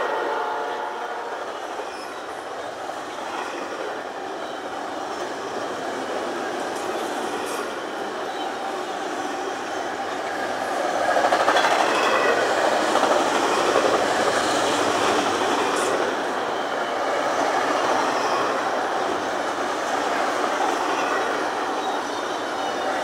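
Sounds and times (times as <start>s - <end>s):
freight train wheels clattering: 9.2s - 23.0s.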